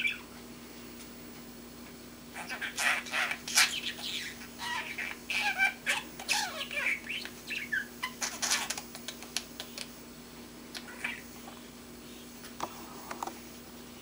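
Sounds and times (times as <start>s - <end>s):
budgerigar babbling: 2.4s - 8.8s, 10.8s - 11.3s.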